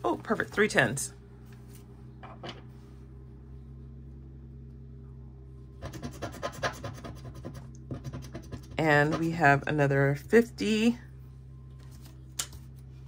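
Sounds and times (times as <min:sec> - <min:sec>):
steady low hum: 0:00.0 - 0:13.0
scratching a scratch-off circle: 0:05.8 - 0:09.5.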